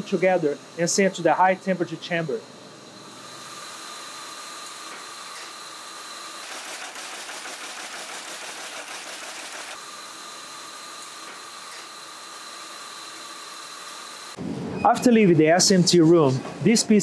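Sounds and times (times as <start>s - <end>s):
high machine whines: 0.0s - 15.2s
fast ticking machine clatter: 6.4s - 9.8s.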